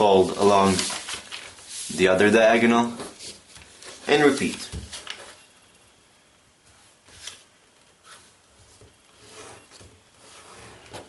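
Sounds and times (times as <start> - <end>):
paper rustling as folded: 0.0 - 5.4.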